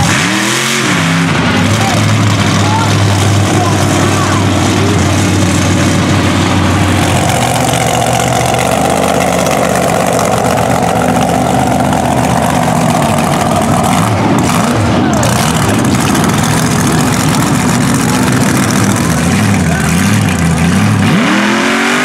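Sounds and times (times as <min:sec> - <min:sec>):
truck engine at low throttle: 0:00.0 - 0:22.0.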